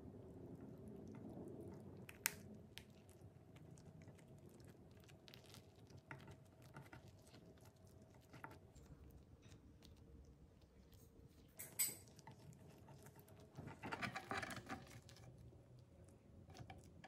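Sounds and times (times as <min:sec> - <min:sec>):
rice paper crackling being rolled: 0:03.2 - 0:11.6.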